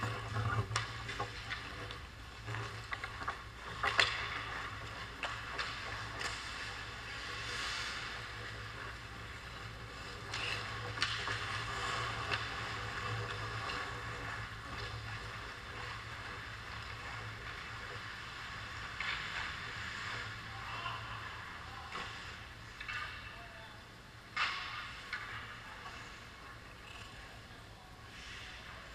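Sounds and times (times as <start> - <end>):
skates scraping on ice: 0.0 - 23.2
steady low hum: 0.0 - 28.9
hockey sticks knocking puck: 0.6 - 7.2, 7.9 - 19.6, 24.4 - 25.9.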